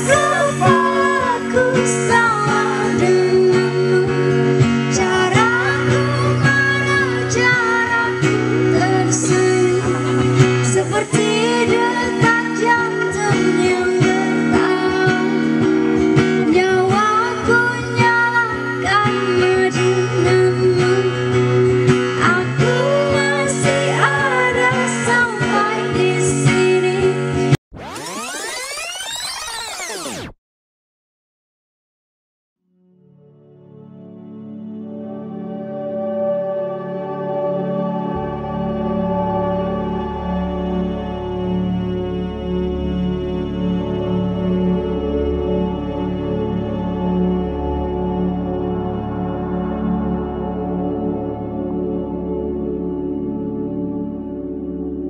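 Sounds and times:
strummed acoustic guitar: 0.0s - 27.6s
woman singing into a microphone: 0.0s - 27.6s.

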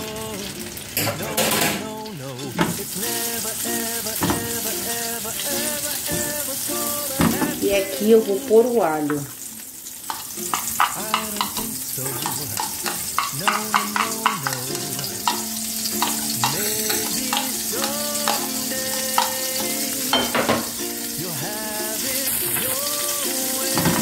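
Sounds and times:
garlic sizzling in frying pan: 0.0s - 24.0s
spoon clicking on bowl and pan: 4.2s - 4.7s, 10.0s - 20.8s.

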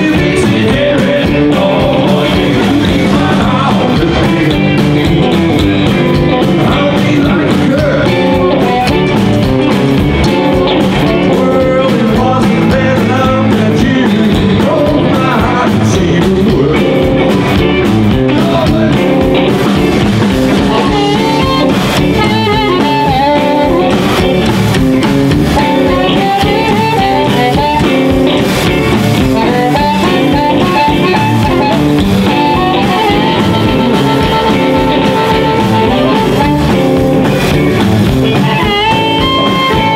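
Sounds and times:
person singing: 0.0s - 9.3s, 10.1s - 19.5s, 20.5s - 24.5s, 25.6s - 28.4s, 29.2s - 37.3s
live blues band: 0.0s - 39.9s
harmonica: 20.6s - 24.6s, 25.6s - 37.4s, 38.3s - 39.9s.

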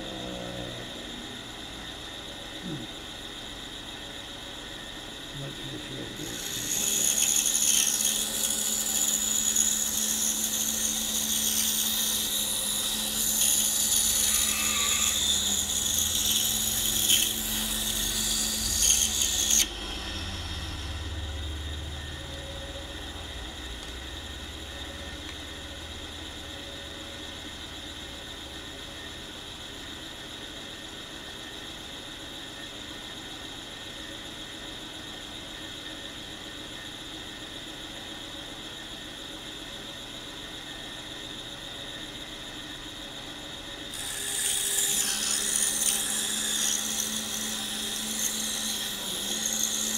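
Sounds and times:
saw motor hum: 0.0s - 31.7s, 43.4s - 49.9s
saw blade cutting wood: 5.9s - 20.6s, 43.9s - 49.9s.

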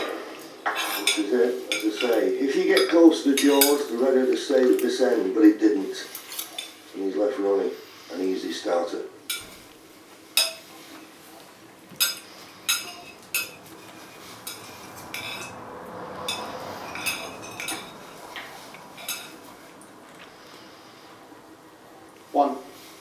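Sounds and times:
cutlery clinking on plate: 0.7s - 3.9s, 10.4s - 10.7s, 12.0s - 15.6s, 16.2s - 19.5s.

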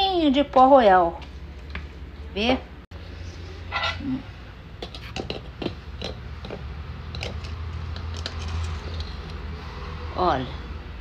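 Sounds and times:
spoon and containers clicking: 4.8s - 9.4s.

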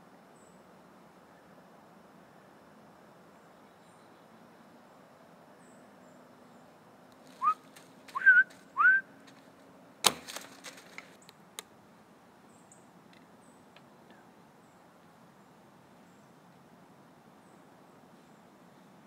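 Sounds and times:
short rising whistles: 7.4s - 9.1s
sharp snap: 10.0s - 11.7s.

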